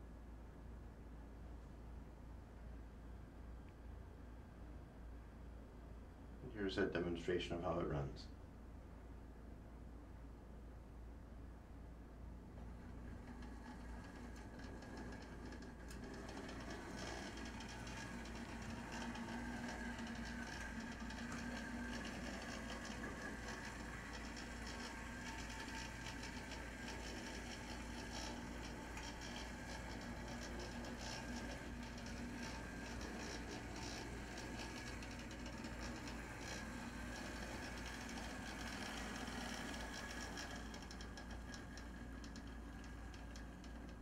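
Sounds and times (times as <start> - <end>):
model train motor whine: 12.8 - 44.0
ticking of wheels on rail: 13.1 - 44.0.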